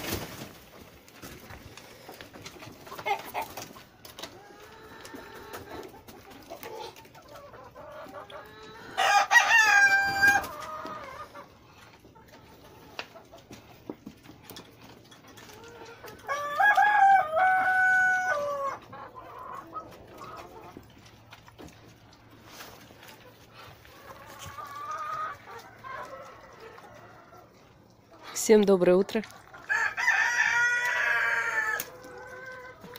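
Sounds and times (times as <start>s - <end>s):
hens clucking: 0.0s - 32.9s
rooster crowing: 9.0s - 10.5s, 16.3s - 18.8s, 29.7s - 31.9s.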